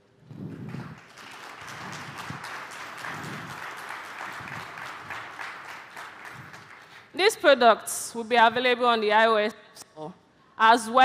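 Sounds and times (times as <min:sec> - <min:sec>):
audience applauding: 0:00.4 - 0:07.2.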